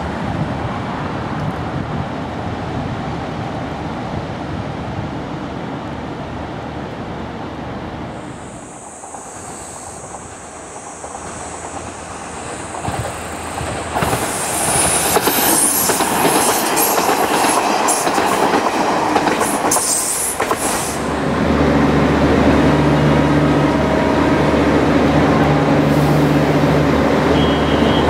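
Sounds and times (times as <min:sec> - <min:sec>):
train passing with wheel clatter: 0:00.0 - 0:28.0
diesel railcar idling hum: 0:21.0 - 0:28.0.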